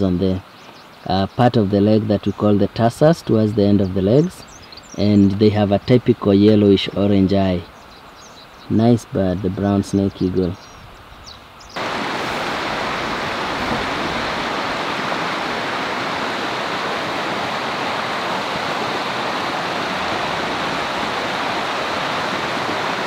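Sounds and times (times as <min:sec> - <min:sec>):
flowing river water: 0:11.4 - 0:23.0.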